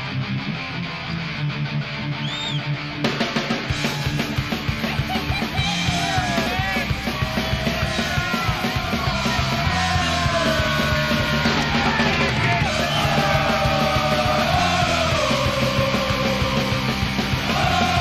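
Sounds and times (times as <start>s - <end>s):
rock music with driving beat: 0.0s - 18.0s
person singing: 12.9s - 18.0s.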